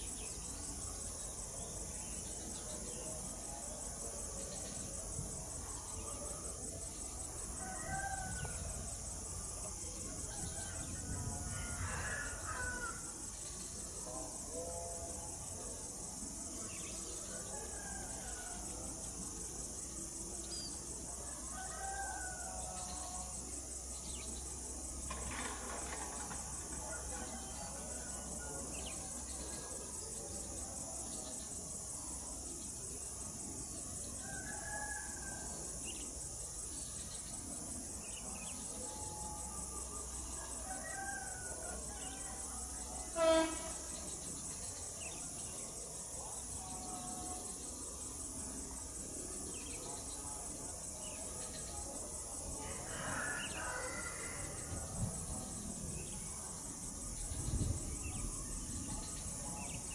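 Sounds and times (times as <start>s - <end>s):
insects chirping: 0.0s - 59.9s
distant rooster crowing: 7.4s - 13.2s, 17.3s - 19.0s, 21.3s - 23.4s, 25.0s - 28.7s, 34.2s - 36.0s, 38.8s - 43.6s, 52.6s - 56.2s.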